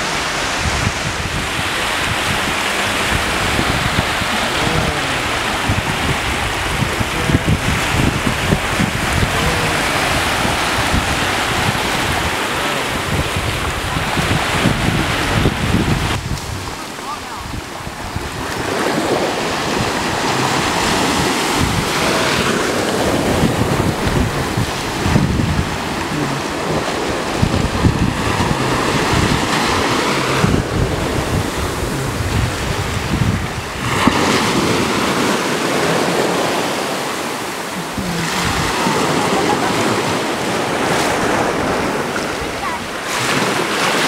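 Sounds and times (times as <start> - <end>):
small waves breaking in surf: 0.0 - 44.0
wind buffeting microphone: 0.0 - 44.0.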